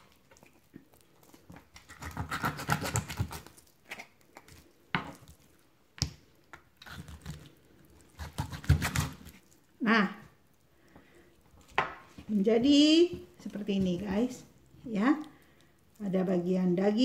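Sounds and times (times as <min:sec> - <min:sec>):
knife crunching through fish: 0:01.2 - 0:05.4, 0:06.8 - 0:09.6.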